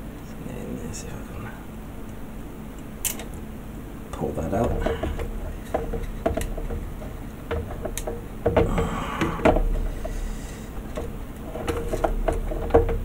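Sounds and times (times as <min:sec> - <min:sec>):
wires clicking and rustling in plastic: 0:04.2 - 0:13.0.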